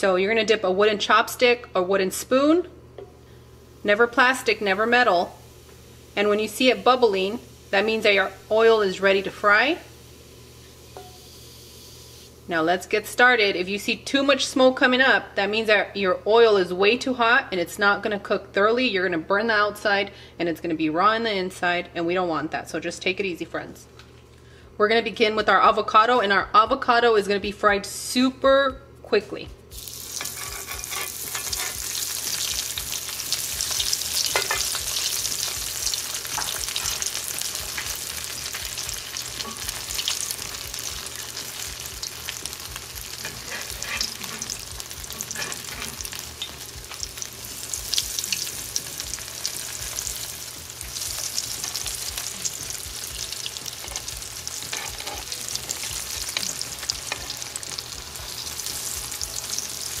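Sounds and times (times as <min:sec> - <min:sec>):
food sizzling in hot oil: 0:03.5 - 0:13.2, 0:29.7 - 1:00.0.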